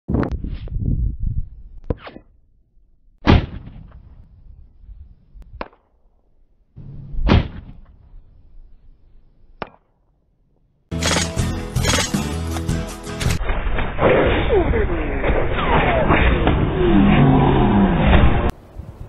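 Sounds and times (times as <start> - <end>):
sharp clicks: 10.9 - 12.2.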